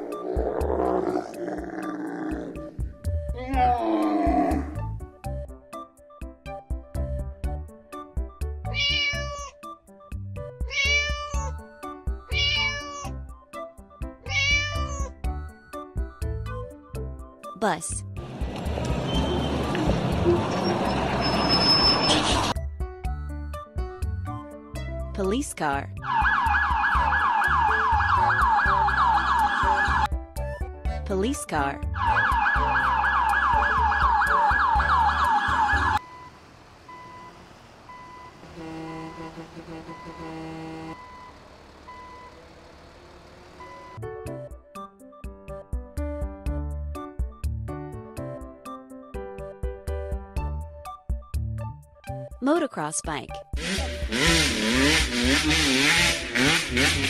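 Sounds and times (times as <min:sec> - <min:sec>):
cat meowing: 0:08.7 - 0:09.6, 0:10.7 - 0:11.6, 0:12.3 - 0:13.1, 0:14.3 - 0:15.1
background music with steady beat: 0:22.6 - 0:36.0, 0:44.0 - 0:57.0
toy police siren yelp: 0:26.0 - 0:30.1, 0:32.0 - 0:36.0.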